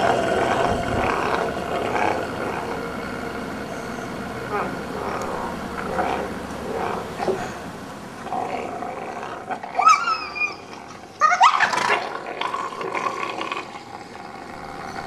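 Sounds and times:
wolf pup squealing: 9.1s - 12.7s.

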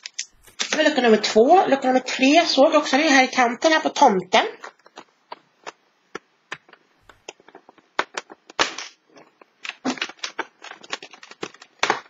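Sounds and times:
cardboard tearing and crackling: 9.6s - 12.0s.

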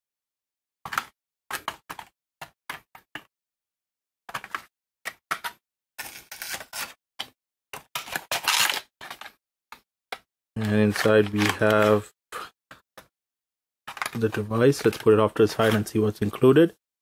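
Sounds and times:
plastic tray clicking and crinkling: 0.9s - 2.1s, 4.3s - 5.6s, 7.2s - 12.0s, 13.9s - 15.9s.

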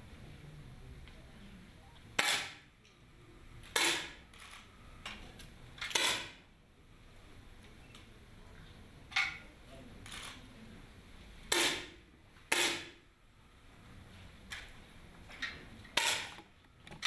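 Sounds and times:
air rifle shots: 2.2s - 2.6s, 3.7s - 4.5s, 5.9s - 6.4s, 11.5s - 13.0s, 16.0s - 16.4s.

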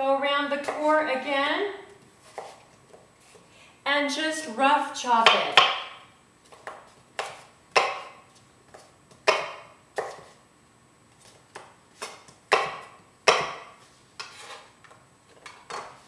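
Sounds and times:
knife chopping on wooden board: 2.3s - 2.6s, 5.3s - 10.3s, 11.5s - 14.7s.

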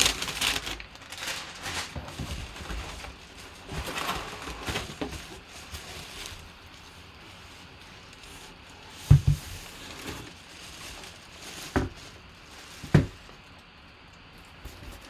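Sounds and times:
nylon bag rustling: 0.0s - 13.5s.

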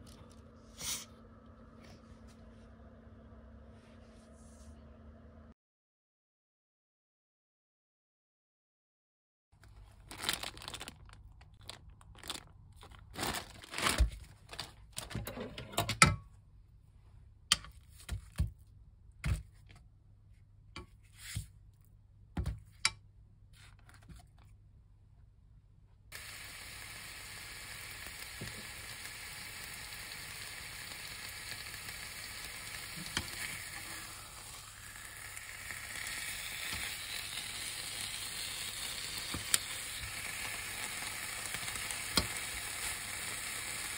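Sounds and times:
plastic film crinkling and tearing: 9.6s - 15.2s
meat sizzling in a pan: 26.1s - 43.9s.

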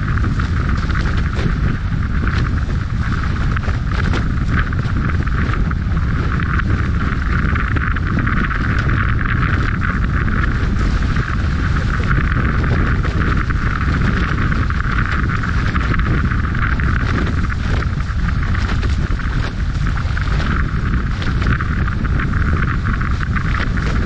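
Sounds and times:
water rushing off hulls: 0.0s - 24.0s
wind buffeting microphone: 0.0s - 24.0s.

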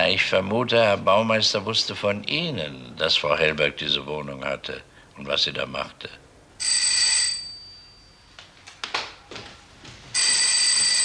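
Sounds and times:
electric doorbell ringing: 6.6s - 8.4s, 10.2s - 11.0s
faint knocks or steps: 8.3s - 11.0s.

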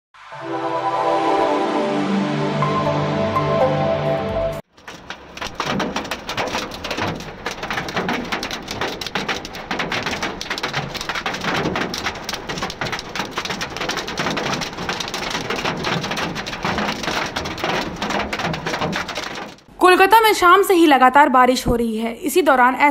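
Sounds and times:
hail clattering on cars: 4.7s - 19.7s.

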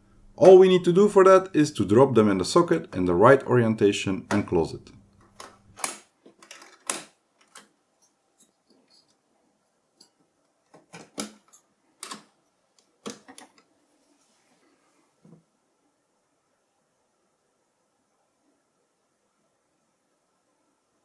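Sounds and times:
faint handling noise: 5.1s - 15.6s
sharp metallic latch clicks: 5.4s - 7.7s.

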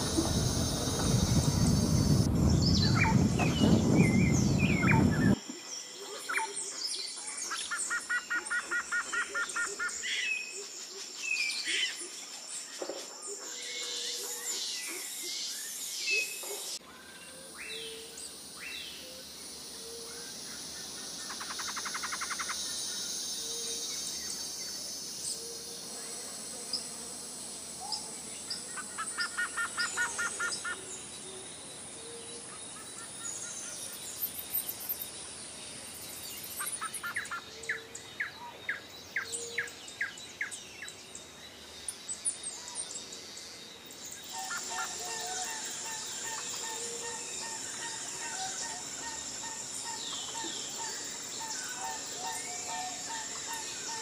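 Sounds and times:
birds calling: 0.0s - 5.4s
insect drone: 0.0s - 54.0s.

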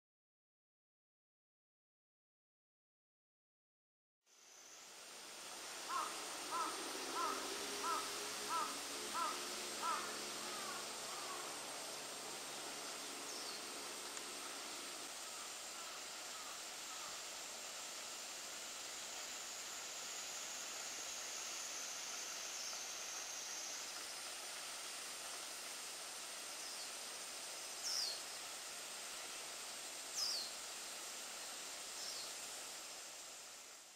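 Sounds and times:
faint steady high whine: 4.3s - 33.9s
small waterfall hissing: 4.3s - 33.9s
bird calling: 5.9s - 11.6s, 15.3s - 17.1s.

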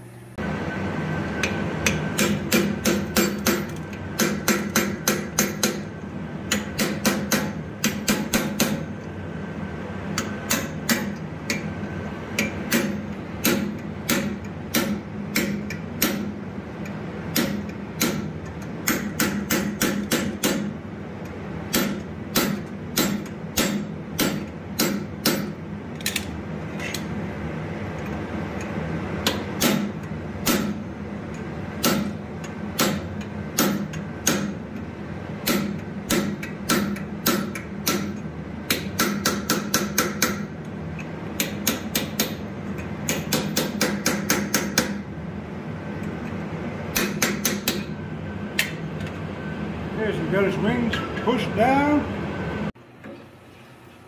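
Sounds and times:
hammer striking metal: 1.4s - 5.9s, 6.5s - 9.0s, 10.2s - 11.7s, 12.4s - 16.4s, 17.3s - 20.8s, 21.7s - 26.2s, 29.2s - 30.8s, 31.8s - 32.2s, 32.8s - 34.6s, 35.4s - 40.6s, 41.4s - 45.0s, 46.9s - 48.0s.

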